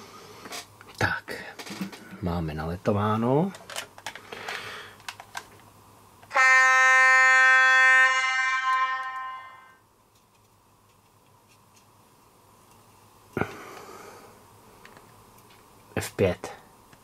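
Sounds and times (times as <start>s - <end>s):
model locomotive horn blast: 6.3s - 9.8s.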